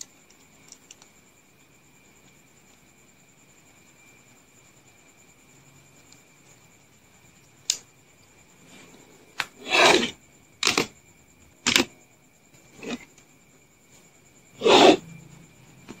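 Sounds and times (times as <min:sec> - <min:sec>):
plastic scraping against plastic: 0:09.5 - 0:10.9, 0:11.7 - 0:11.9, 0:12.7 - 0:13.1.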